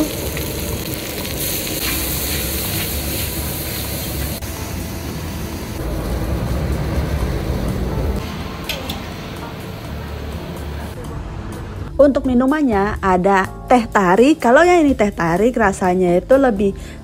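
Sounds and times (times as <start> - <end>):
constant sizzling: 0.0 - 11.0
low burner rumble: 0.0 - 11.9
metal spatula scraping wok: 1.8 - 4.4.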